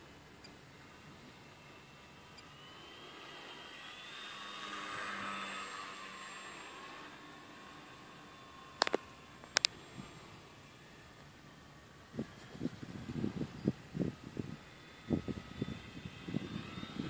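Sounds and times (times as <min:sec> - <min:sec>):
model plane motor whining: 0:00.0 - 0:17.0
sharp clicks: 0:08.8 - 0:09.8.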